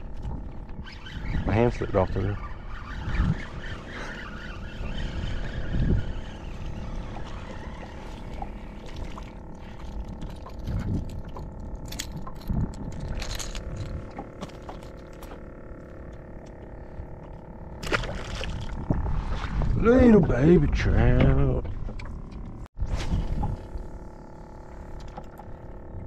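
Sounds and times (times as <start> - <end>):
motor hum: 0.0 - 26.0
wind buffeting microphone: 1.1 - 3.9, 4.6 - 8.1
fishing reel clicks: 9.6 - 15.4.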